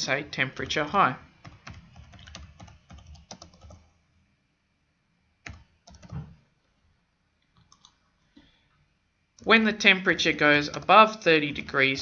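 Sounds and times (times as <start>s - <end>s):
keyboard typing: 1.4s - 3.9s, 5.4s - 6.4s, 7.5s - 8.1s, 10.6s - 11.7s.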